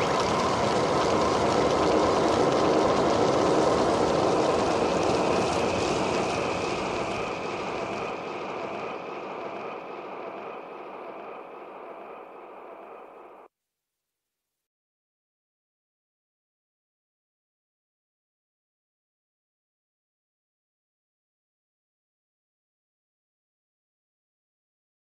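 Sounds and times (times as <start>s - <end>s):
psytrance rushing noise wash: 0.0s - 13.5s.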